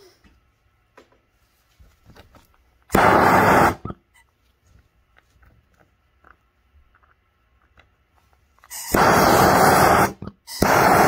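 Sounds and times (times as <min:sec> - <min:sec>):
gas torch flame roaring: 0:02.9 - 0:04.0, 0:08.7 - 0:11.0.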